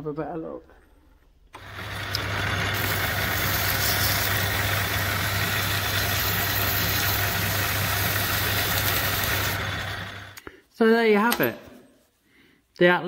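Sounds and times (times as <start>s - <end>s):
lathe motor humming: 1.6s - 10.4s
emery cloth polishing metal: 2.8s - 9.6s.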